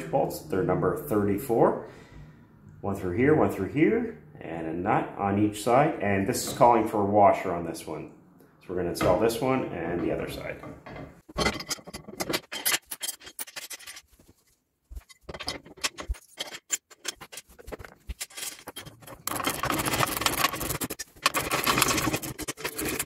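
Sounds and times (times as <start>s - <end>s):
metal clicks and knocks: 10.0s - 14.0s, 15.0s - 23.0s
continuous rasping: 12.2s - 23.0s.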